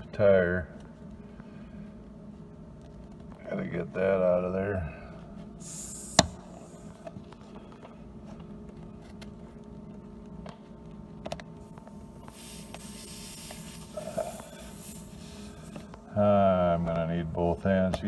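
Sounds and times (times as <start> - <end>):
steady low hum: 0.0 - 18.0
soft hiss: 5.6 - 7.0, 11.6 - 16.0.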